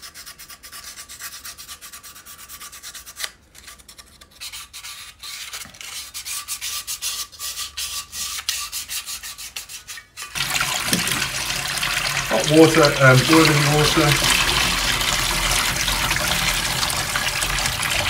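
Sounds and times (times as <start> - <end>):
sandpaper rubbing on metal: 0.0 - 3.3, 3.9 - 10.4.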